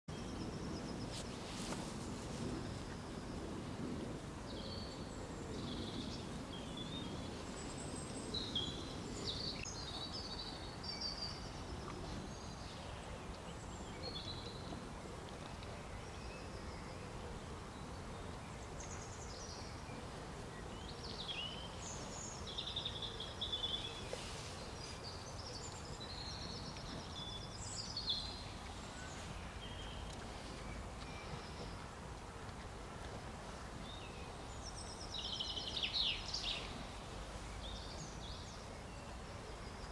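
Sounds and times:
outdoor background noise: 0.1 - 39.9
small birds chirping: 15.4 - 32.0.

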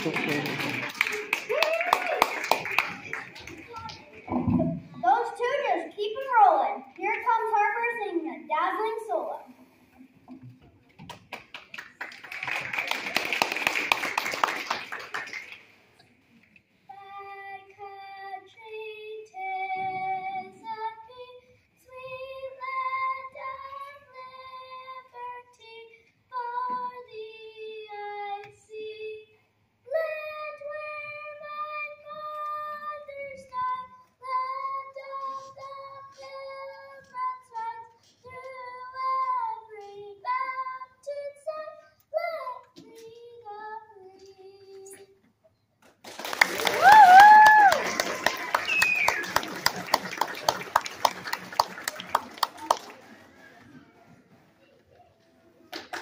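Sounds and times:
audience clapping: 0.0 - 4.3, 11.0 - 15.8, 45.9 - 53.6, 55.7 - 56.0
child singing: 16.9 - 45.2.

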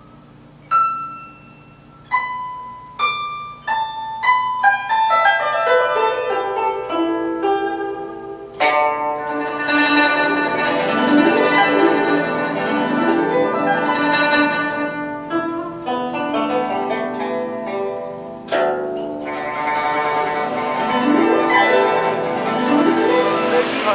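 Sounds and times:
plucked zither music: 0.0 - 23.9.

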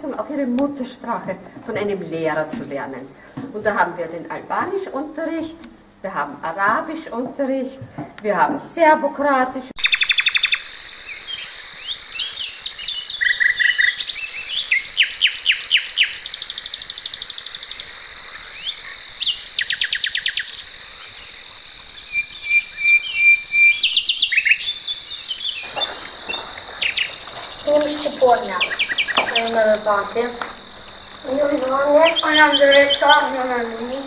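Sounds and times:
voices: 0.0 - 9.7, 25.6 - 34.0
small birds chirping: 9.8 - 34.0
steady high drone: 25.6 - 34.0.

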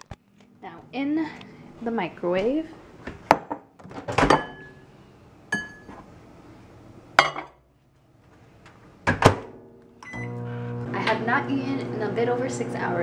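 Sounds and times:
ceramic bowl clinking on glass: 5.5 - 5.9.

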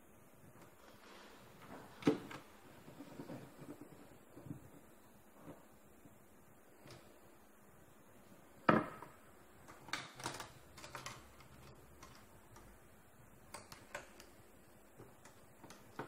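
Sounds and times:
parts clicking and rattling: 9.0 - 12.8.

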